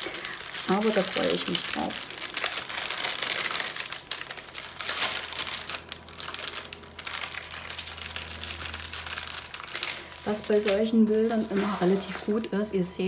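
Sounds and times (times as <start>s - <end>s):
plastic bags crinkling: 0.0s - 12.9s.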